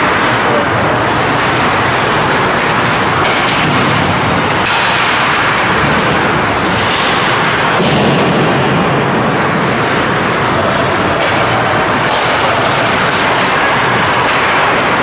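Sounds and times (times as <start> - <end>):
hockey sticks or puck clicking: 0.0 - 8.8, 9.5 - 15.0
arena noise: 0.0 - 15.0.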